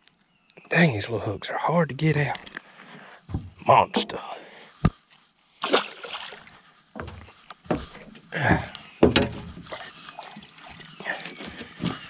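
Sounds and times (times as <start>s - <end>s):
sharp knocks on boat: 3.3s - 4.2s, 7.0s - 8.1s, 9.0s - 9.6s
water splashing: 5.6s - 12.0s.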